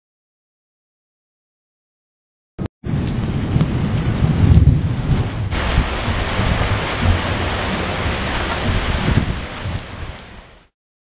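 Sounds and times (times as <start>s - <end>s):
heavy rain: 2.8s - 10.7s
thunder rumbles: 2.8s - 10.7s.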